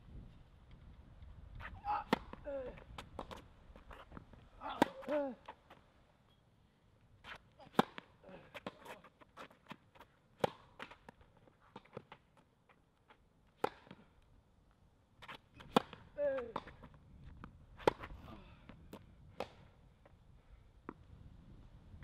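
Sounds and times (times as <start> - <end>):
tennis ball struck with racket: 2.0 - 2.4, 4.6 - 5.2, 7.7 - 9.8, 10.4 - 11.1, 13.6 - 14.0, 15.6 - 16.9, 17.8 - 18.2
tennis ball bouncing: 2.0 - 5.2, 7.3 - 12.2, 13.6 - 14.0, 15.2 - 19.6.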